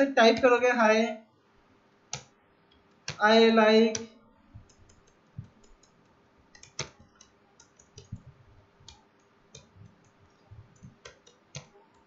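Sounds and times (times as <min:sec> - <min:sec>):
keyboard typing clicks: 0:02.1 - 0:03.2, 0:03.9 - 0:12.0.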